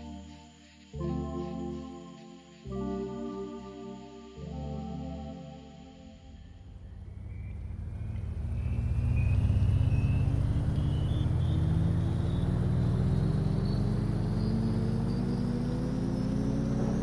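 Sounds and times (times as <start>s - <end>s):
high whine: 0.0s - 17.0s
vehicle accelerating rumble: 6.3s - 17.0s.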